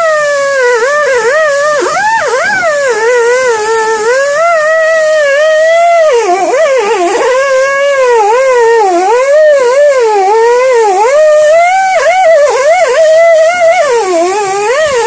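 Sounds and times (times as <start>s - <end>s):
gliding wavering melody: 0.0s - 15.0s.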